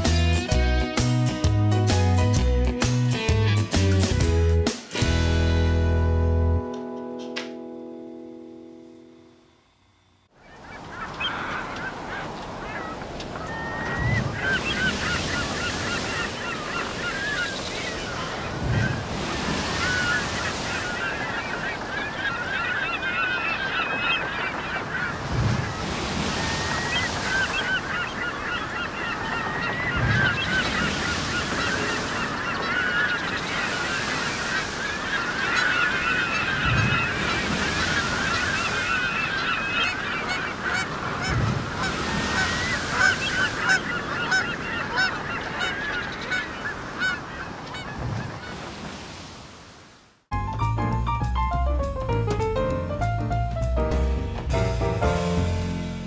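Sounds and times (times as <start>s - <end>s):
gulls calling: 10.3s - 49.4s
waves breaking on shore: 10.4s - 50.3s.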